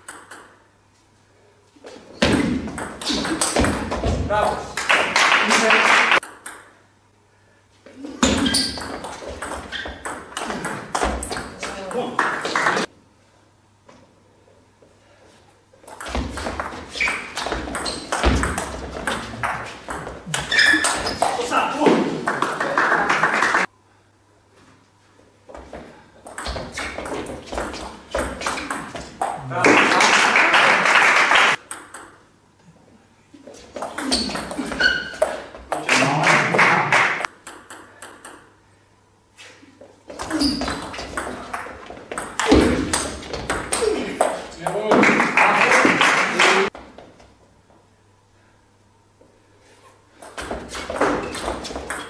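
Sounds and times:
table tennis ball pinging: 0.0 - 0.6, 6.2 - 6.8, 8.2 - 12.9, 15.9 - 21.4, 26.2 - 29.4, 31.6 - 32.2, 37.3 - 38.5, 40.2 - 45.1.

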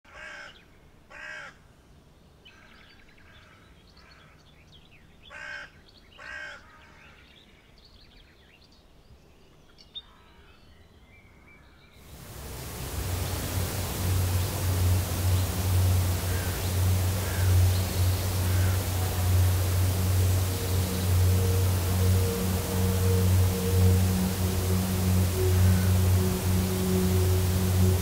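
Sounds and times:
crow cawing: 1.2 - 1.5, 16.3 - 16.6, 17.2 - 17.6, 18.4 - 19.4
steady rushing hiss: 12.1 - 28.0
small birds chirping: 12.3 - 28.0.

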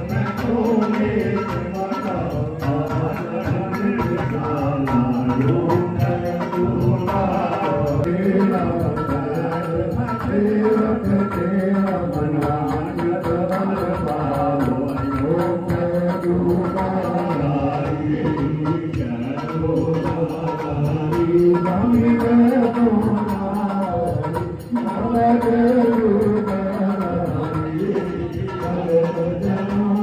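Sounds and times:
drum beating: 0.0 - 30.0
man chanting over loudspeakers: 0.0 - 30.0.

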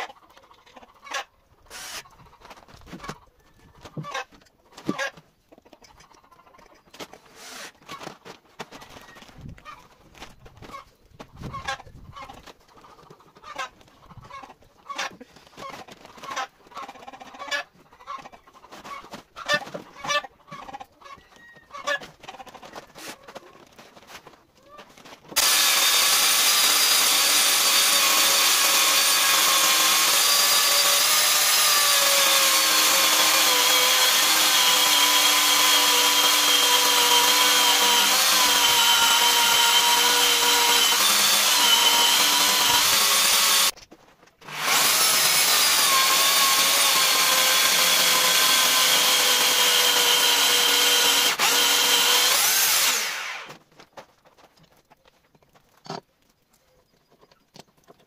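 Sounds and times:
electric chainsaw cutting log: 1.7 - 2.1, 7.3 - 7.8, 25.4 - 43.8, 44.4 - 53.6.

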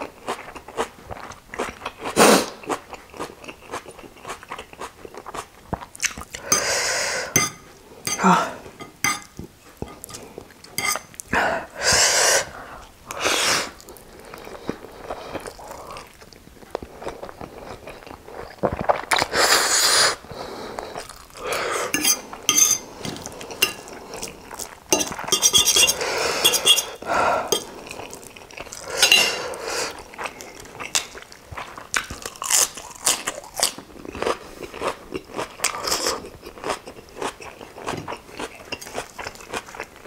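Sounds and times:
chewing: 0.0 - 6.7, 13.7 - 19.3, 20.4 - 40.0
cutlery scraping ceramic plate: 7.3 - 11.1, 21.9 - 23.9, 24.9 - 27.7, 29.0 - 29.5.

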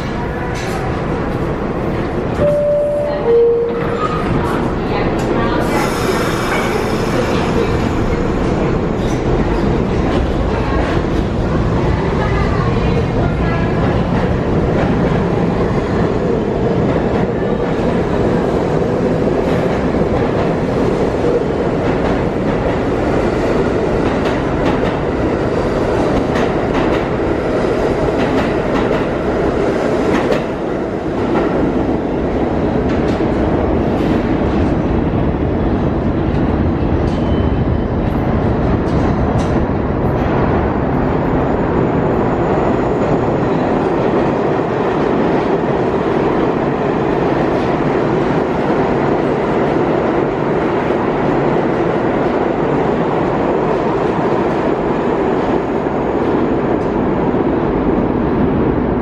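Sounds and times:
subway train rumbling: 0.0 - 59.0.

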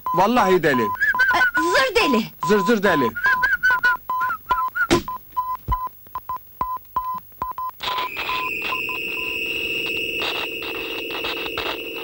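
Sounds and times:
electronic gadget beeping: 0.1 - 5.2, 7.6 - 12.0
high electronic whine: 7.8 - 12.0
low buzz: 7.8 - 12.0.

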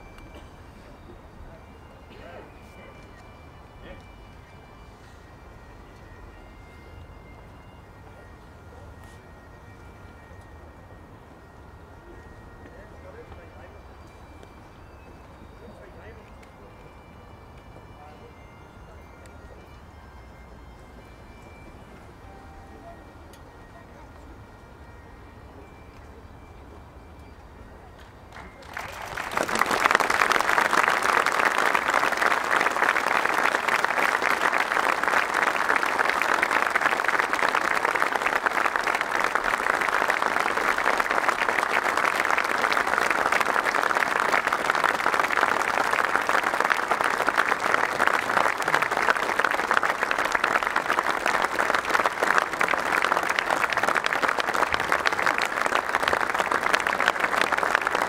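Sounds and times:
stadium crowd applauding: 28.3 - 58.0.

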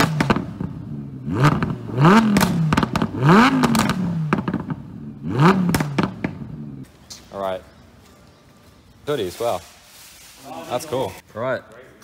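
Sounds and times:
sports car engine revving: 0.0 - 6.9
exhaust crackles and pops: 0.0 - 7.2.

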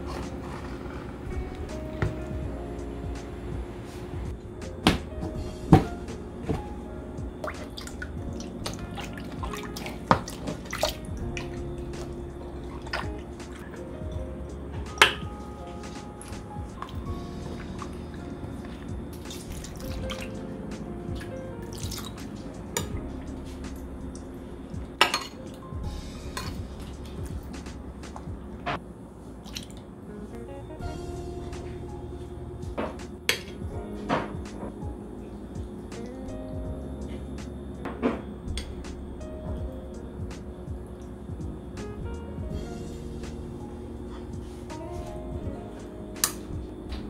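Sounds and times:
soft background music: 0.0 - 28.8, 30.0 - 47.0
liquid dripping and splashing: 7.4 - 13.8, 16.8 - 20.4, 21.2 - 23.0, 29.4 - 29.9
dishes and utensils clinking: 25.0 - 25.5.

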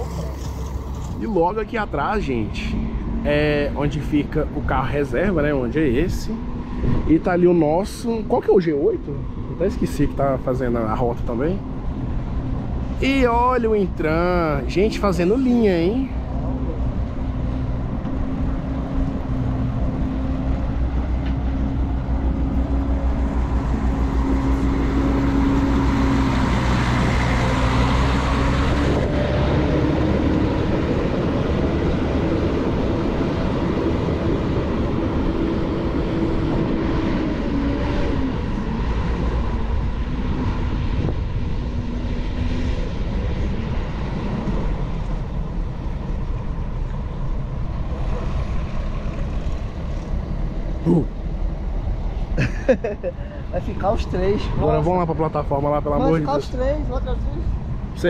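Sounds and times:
coach diesel engine pulling away: 18.8 - 40.2.

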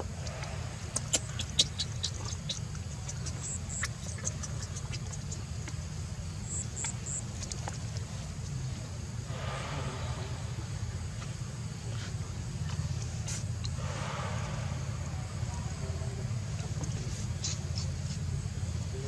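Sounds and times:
low background rumble: 0.0 - 19.0
short rush of noise: 13.7 - 15.8.

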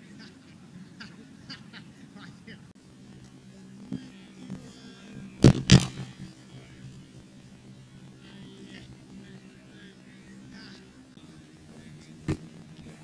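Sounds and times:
steady low hum: 0.0 - 13.0
sharp impacts: 5.2 - 6.7.

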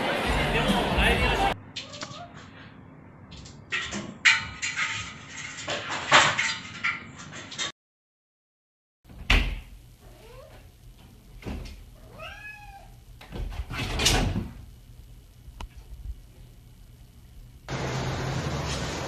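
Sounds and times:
cat meowing: 1.8 - 2.4, 12.0 - 13.0.

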